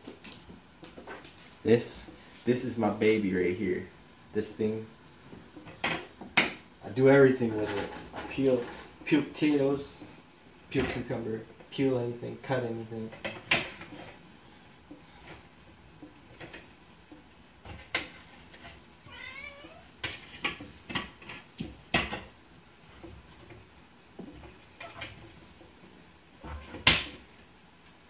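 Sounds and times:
cat meowing: 19.0s - 19.9s, 26.4s - 26.8s.

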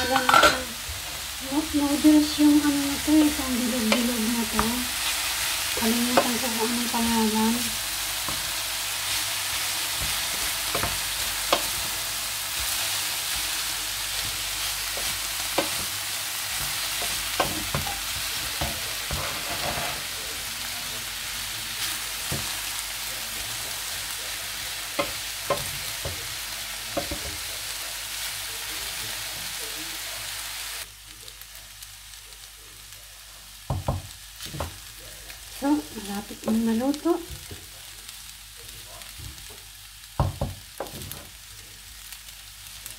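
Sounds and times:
food sizzling in a frying pan: 0.0s - 42.9s
wooden spatula scraping a pan: 12.6s - 20.2s.

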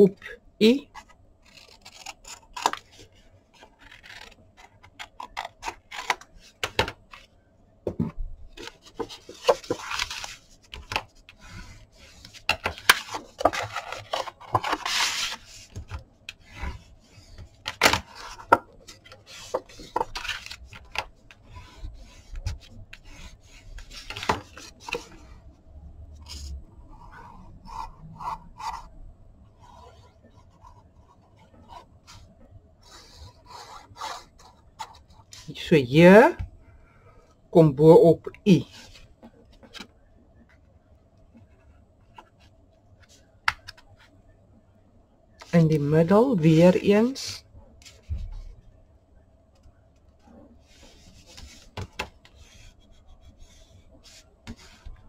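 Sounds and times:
cardstock folding and creasing: 0.9s - 7.3s, 8.6s - 25.2s.

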